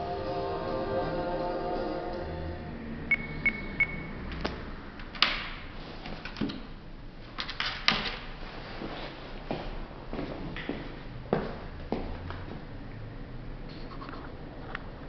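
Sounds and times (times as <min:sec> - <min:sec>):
music from small player: 0:00.0 - 0:02.7
short high electronic beeps: 0:03.1 - 0:04.2.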